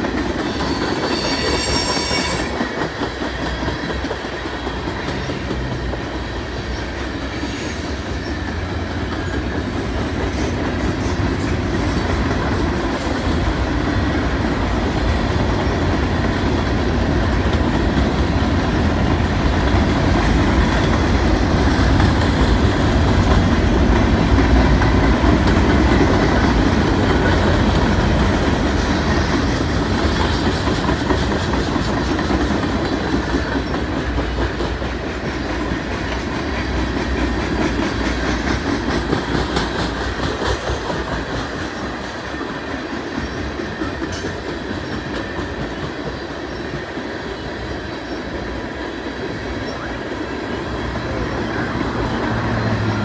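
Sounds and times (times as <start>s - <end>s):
train wheels rumbling on rails: 0.0s - 53.0s.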